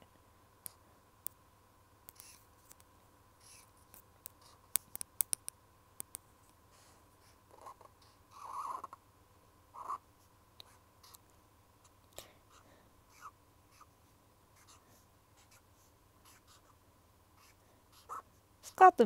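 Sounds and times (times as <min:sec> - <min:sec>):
pen scratching on paper: 0:03.4 - 0:03.7, 0:14.6 - 0:14.8, 0:15.4 - 0:16.8, 0:17.4 - 0:18.2
sharp taps and clicks: 0:03.9 - 0:06.2.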